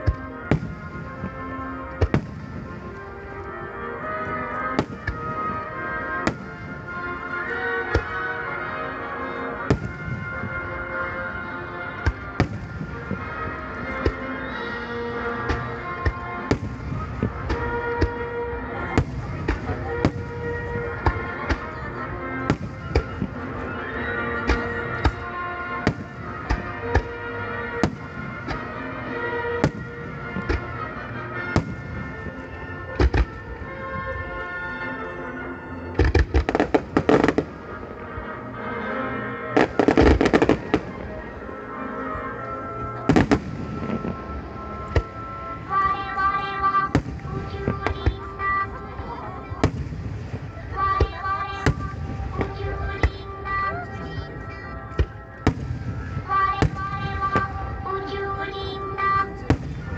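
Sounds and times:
background music: 0.0 - 59.9
firework bangs: 4.7 - 5.6, 15.4 - 23.7, 36.0 - 37.7, 39.6 - 41.2, 43.1 - 45.3, 49.6 - 53.6, 55.0 - 59.9.

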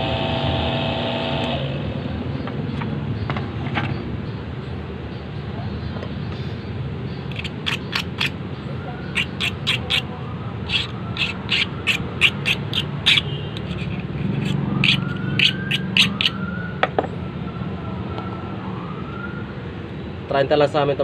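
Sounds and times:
hand file rasping on metal key: 7.3 - 8.4, 9.1 - 16.4.

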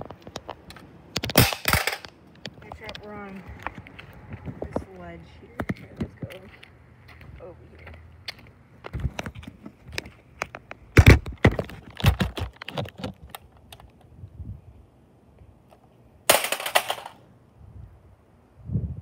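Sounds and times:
plastic toy hitting concrete: 1.1 - 2.2, 10.9 - 13.1, 16.3 - 17.2.

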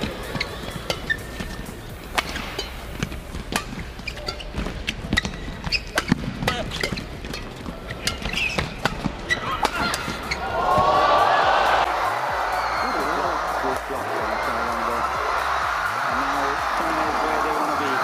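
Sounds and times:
rackets hitting shuttlecock: 0.0 - 11.9.

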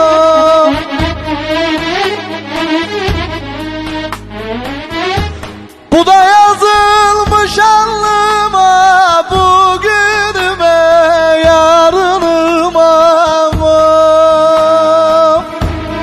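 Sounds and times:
folk-style lead melody: 0.0 - 8.2.

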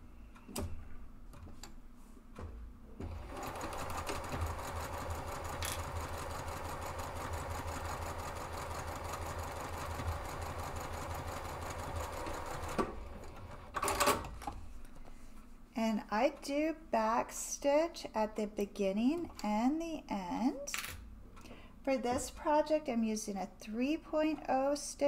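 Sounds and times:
sewing machine stitching: 3.0 - 14.3.

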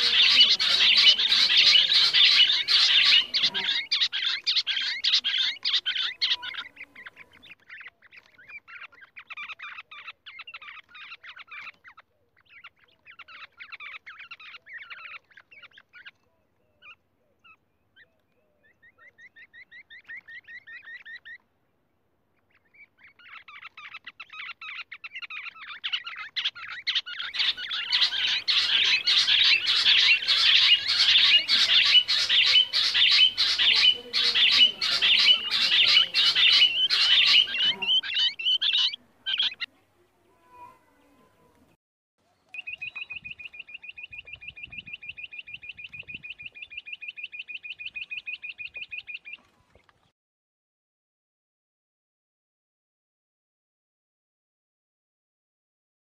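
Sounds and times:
quail rattling trills: 0.0 - 16.2, 16.8 - 21.5, 22.4 - 39.7.

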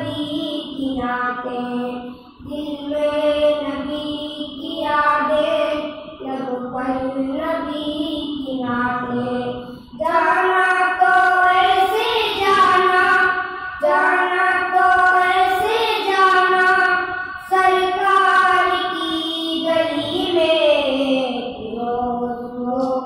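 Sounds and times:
boys singing devotional song: 0.0 - 23.0
singer breathing: 9.6 - 10.0.

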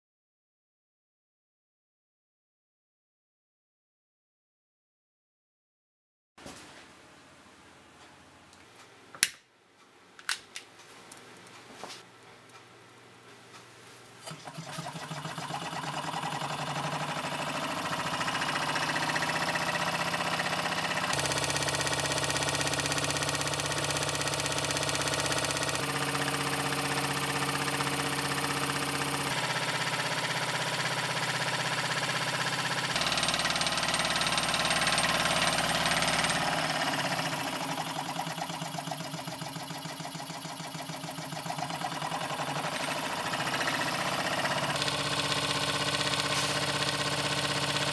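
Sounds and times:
small engine mechanical clatter: 14.2 - 47.9.

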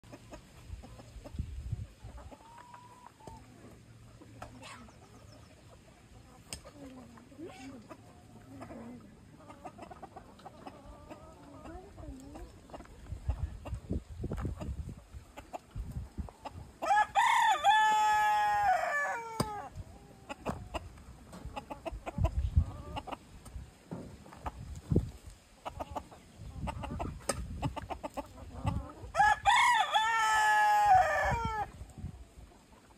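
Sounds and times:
chickens clucking and calling: 0.0 - 32.9
rooster crowing: 16.8 - 19.6, 29.2 - 31.7.

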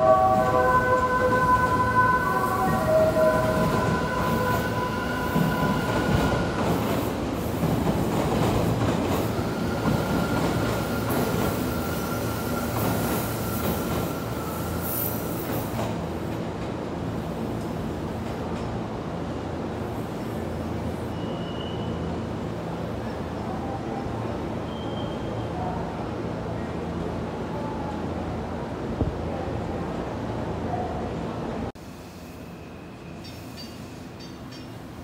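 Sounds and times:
train wheels rumbling on rail: 0.0 - 21.8
high wheel squeal: 21.1 - 22.1.

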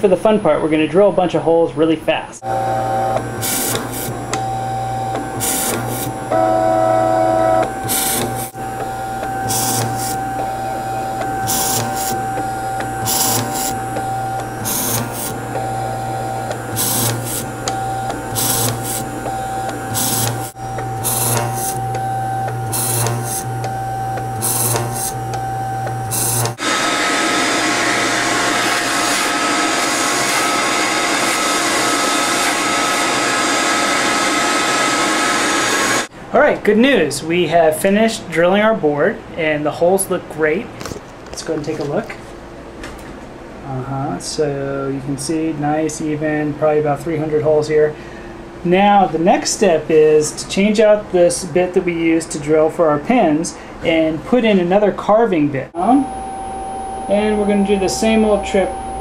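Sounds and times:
mill spindle whine and motor hum: 2.4 - 36.1, 55.8 - 59.0
vacuum cleaner rushing: 2.4 - 36.1
drill bit plunging into board: 11.2 - 26.7.

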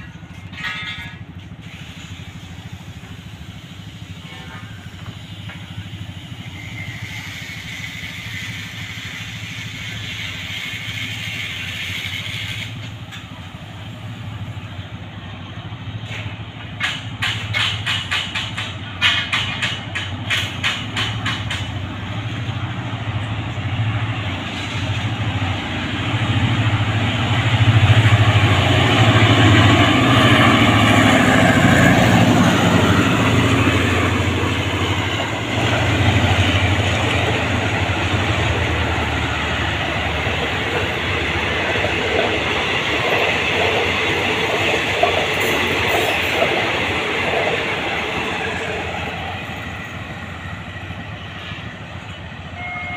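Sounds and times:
coach wheels clacking on rail joints: 0.0 - 14.6, 15.5 - 52.9
diesel locomotive engine: 0.0 - 52.9.

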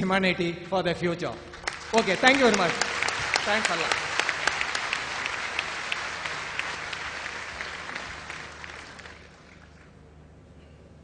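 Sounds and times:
large audience applauding: 1.5 - 10.0.

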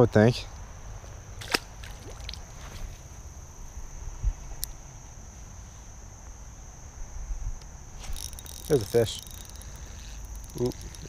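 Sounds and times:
insects trilling: 0.0 - 11.0
wind rumble on microphone: 3.8 - 4.6.

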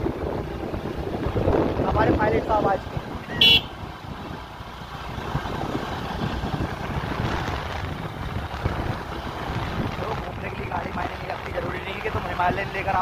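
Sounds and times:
motorcycle engine running: 0.0 - 13.0.

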